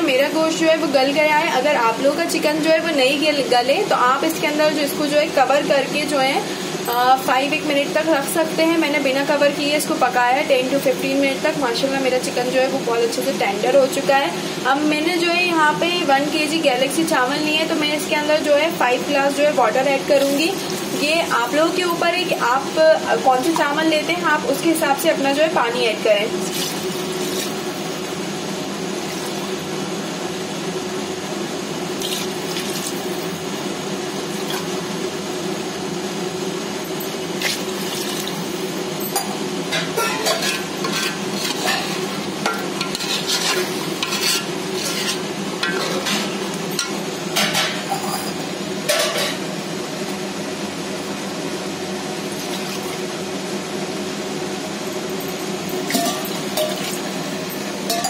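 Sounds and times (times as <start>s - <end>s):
water sizzling in hot pot: 19.3s - 22.8s, 26.4s - 29.8s, 31.9s - 34.8s, 37.1s - 39.0s, 39.7s - 47.5s, 55.7s - 58.0s.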